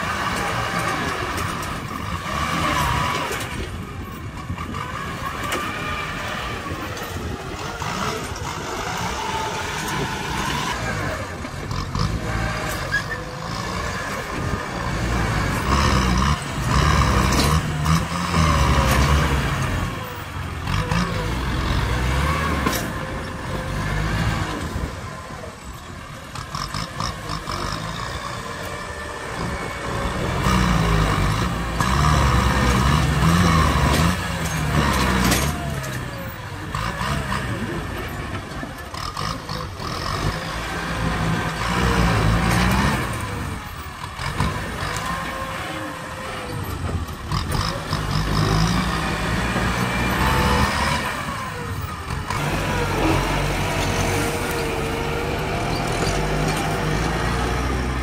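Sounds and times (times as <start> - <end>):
tractor diesel engines labouring: 0.0 - 58.0.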